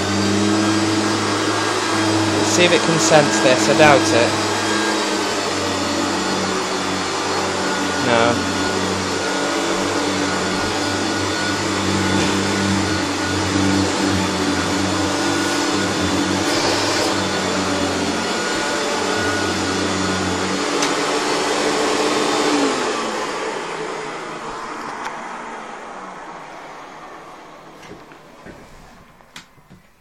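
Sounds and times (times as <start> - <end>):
vacuum cleaner running: 0.0 - 29.8.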